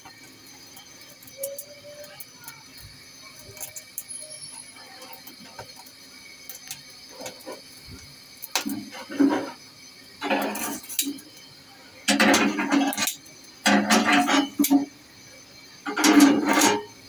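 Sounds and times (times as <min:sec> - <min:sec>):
chicken feet crackling in flame: 0:00.0 - 0:17.0
metal tongs scraping stove grate: 0:08.5 - 0:09.6, 0:10.2 - 0:11.3, 0:12.1 - 0:14.9, 0:15.8 - 0:17.0.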